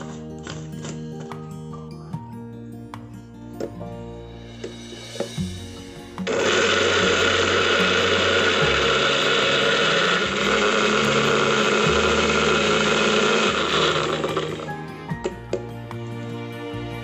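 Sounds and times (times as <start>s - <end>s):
electric blender running: 6.2s - 15.6s.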